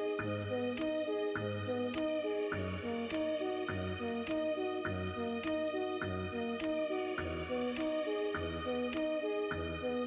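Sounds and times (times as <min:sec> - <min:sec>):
gentle repeating melody: 0:00.0 - 0:10.0
light ticking: 0:00.6 - 0:01.1, 0:01.8 - 0:02.3, 0:03.0 - 0:09.2.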